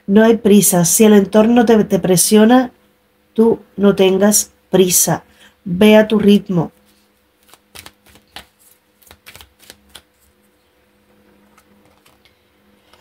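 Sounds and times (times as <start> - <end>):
faint steady hum: 0.0 - 13.0
cards clicking and flicking: 7.4 - 10.3, 11.4 - 12.3.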